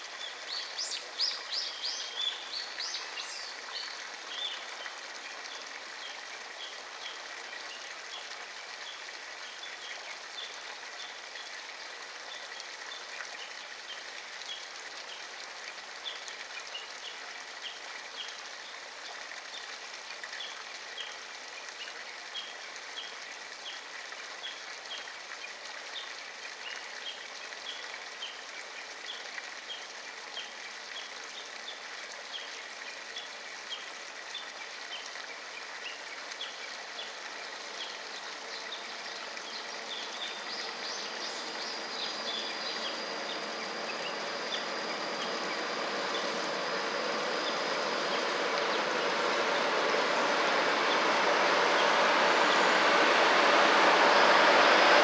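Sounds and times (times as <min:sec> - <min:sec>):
steady hiss: 0:36.9 - 0:55.0
diesel train approaching: 0:40.6 - 0:55.0.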